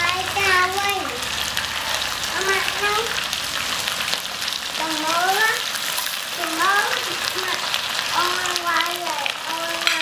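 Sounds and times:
high-pitched voice: 0.0 - 1.2, 2.3 - 3.2, 4.8 - 5.6, 6.4 - 7.6, 8.2 - 10.0
meat sizzling in oil: 0.0 - 10.0.

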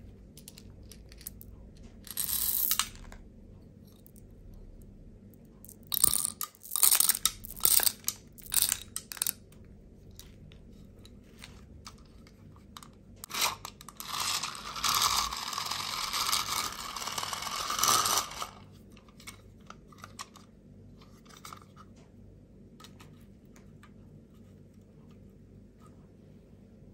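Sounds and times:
candies rattling in plastic tube: 5.7 - 9.4, 13.2 - 18.6
toy fan whirring: 13.2 - 18.7.

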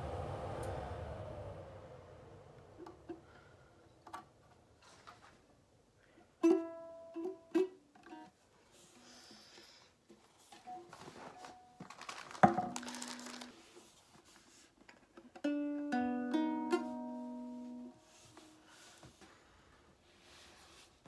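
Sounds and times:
ukulele strings plucked: 6.4 - 8.3, 15.3 - 18.2
ukulele strum: 6.4 - 8.3, 15.3 - 18.9
handling rustle: 10.2 - 14.9.

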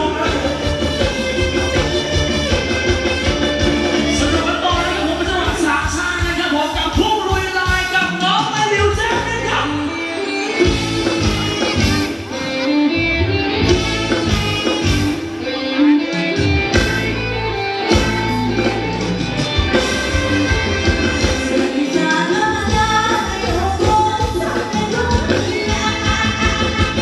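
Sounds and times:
live band dance music: 0.0 - 27.0
person singing: 19.7 - 27.0.

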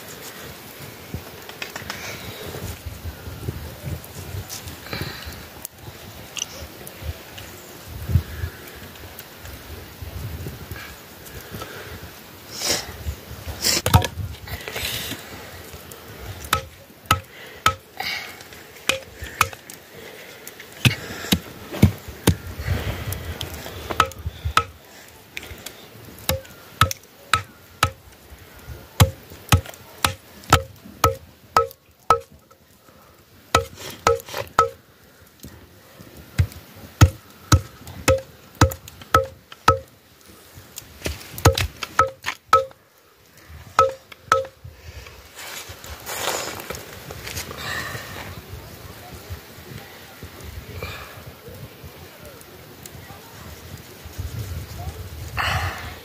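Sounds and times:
cleaver chopping meat on wood: 16.5 - 17.8, 26.3 - 28.0, 29.0 - 32.3, 33.6 - 34.8, 36.4 - 39.9, 41.4 - 42.7.

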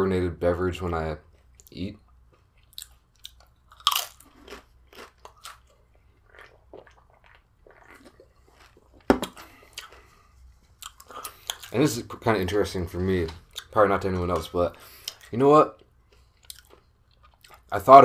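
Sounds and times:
crunchy chewing: 1.3 - 10.2, 15.0 - 17.7
chip bitten with crunch: 1.4 - 10.1
can set down on table: 9.1 - 9.4.

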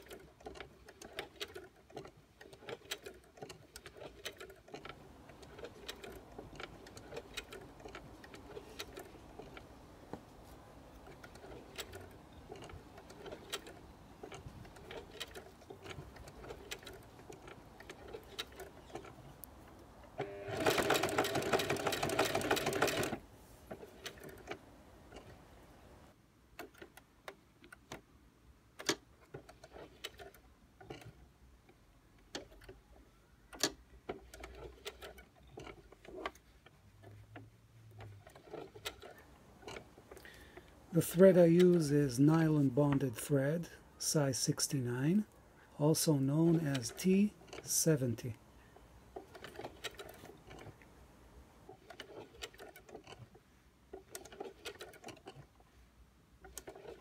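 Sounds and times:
sewing machine running fast: 20.5 - 23.2.

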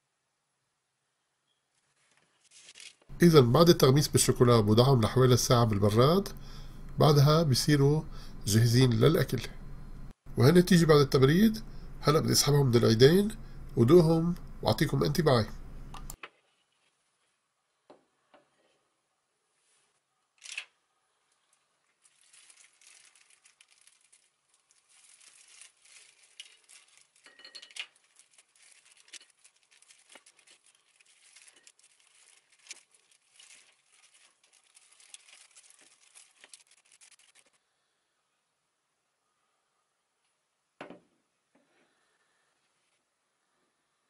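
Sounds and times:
plastic glove crinkling: 1.8 - 6.2, 19.6 - 37.6.

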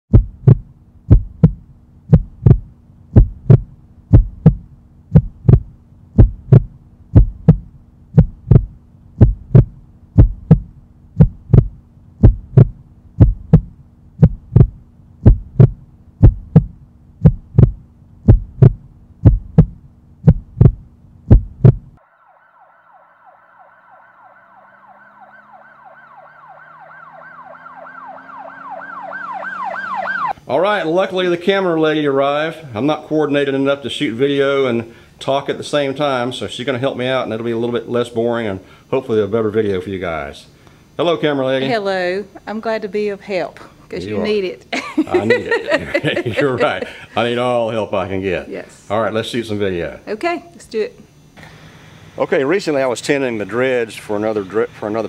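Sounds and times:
heartbeat thumps: 0.1 - 22.0
low steady hum: 0.1 - 55.0
sweeping siren-like alarm: 22.0 - 30.4.

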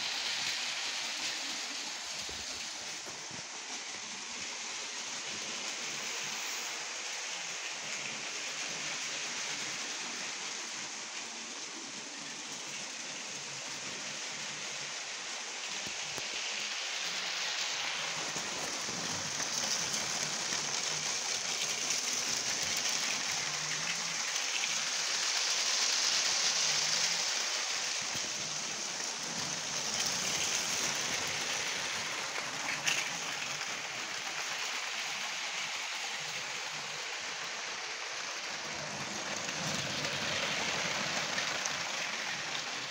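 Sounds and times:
toy train motors rattling whir: 0.0 - 42.9.

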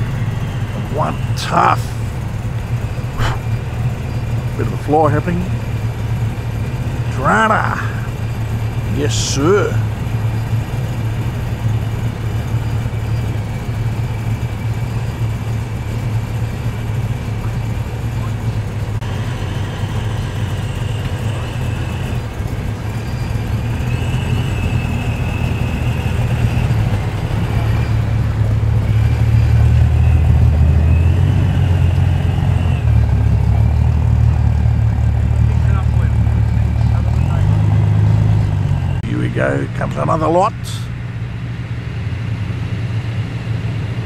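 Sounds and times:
cars rumbling past: 0.0 - 44.0.

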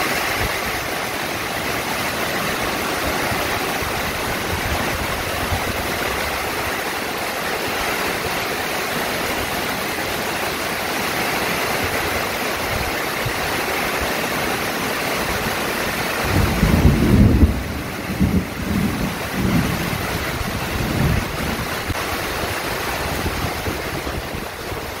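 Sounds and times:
wind gusts hitting microphone: 0.0 - 8.1, 16.2 - 25.0
rain falling: 0.0 - 25.0.

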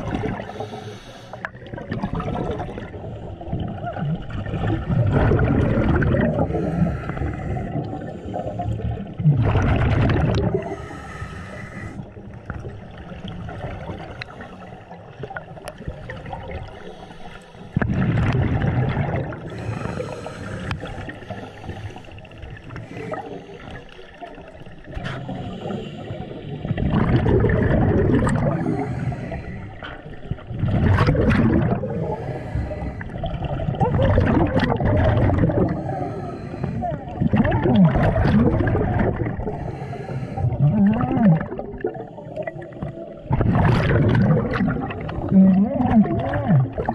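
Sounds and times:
exhaled air bubbling underwater: 0.0 - 46.9
regulator inhale hiss: 0.4 - 1.5, 6.5 - 8.7, 10.6 - 12.2, 16.8 - 17.8, 19.5 - 23.9, 25.2 - 26.7, 28.6 - 29.9, 32.0 - 33.2, 35.7 - 36.9, 39.5 - 40.5.

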